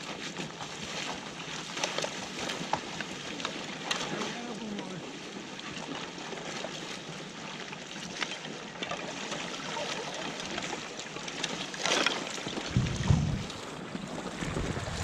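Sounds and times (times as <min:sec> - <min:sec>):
icy water sloshing and splashing: 0:00.0 - 0:15.0
loud splash: 0:12.6 - 0:15.0.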